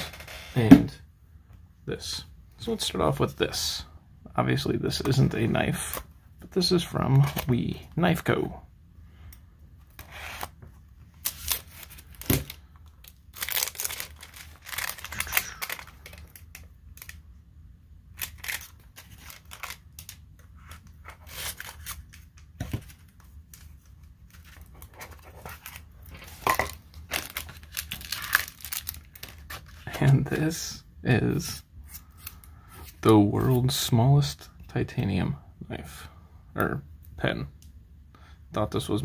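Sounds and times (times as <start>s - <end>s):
plastic wrap tearing and crinkling: 11.2s - 17.2s, 18.1s - 20.2s, 25.6s - 29.9s.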